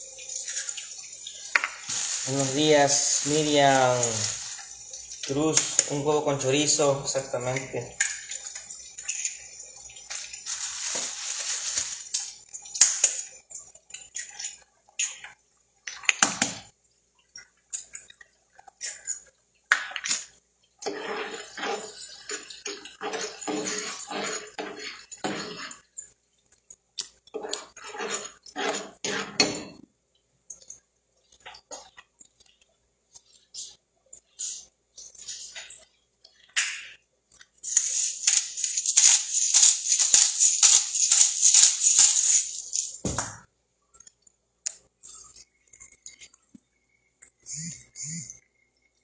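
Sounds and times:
short hiss: 1.8s - 4.7s, 37.6s - 43.0s
utensils and dishes clinking: 37.6s - 43.0s.

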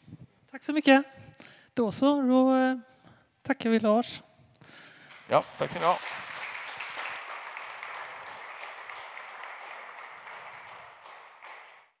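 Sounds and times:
small audience applauding: 4.7s - 12.0s.

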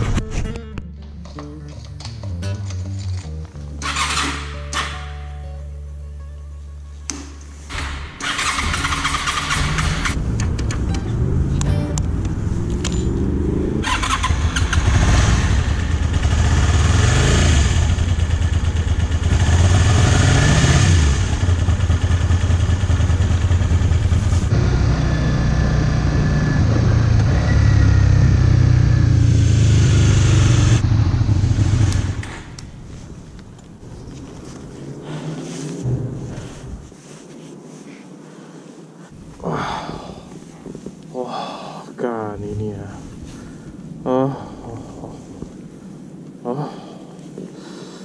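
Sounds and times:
motorcycle engine revving: 7.8s - 32.6s.

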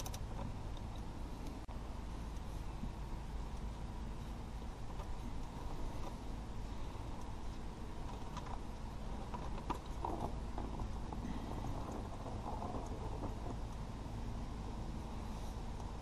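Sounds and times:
low background noise: 0.0s - 16.0s
light clicks and ticks: 7.1s - 13.9s.

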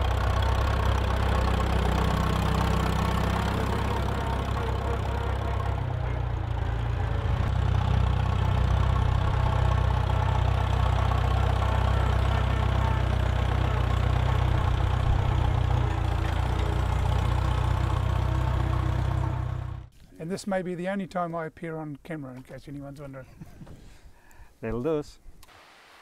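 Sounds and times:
tractor engine running: 0.0s - 19.9s.

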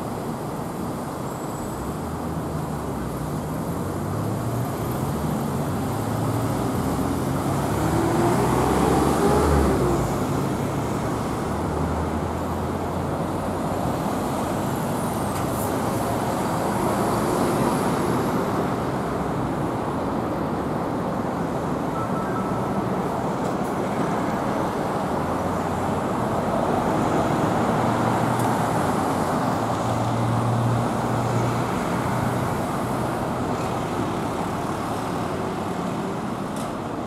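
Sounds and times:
road traffic rumble: 0.0s - 37.0s.

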